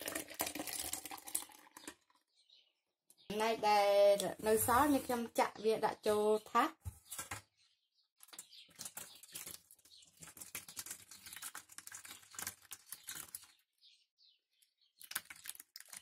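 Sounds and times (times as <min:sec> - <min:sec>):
coconut pieces and liquid pouring: 0:00.0 - 0:02.2, 0:08.7 - 0:13.5, 0:15.0 - 0:16.0.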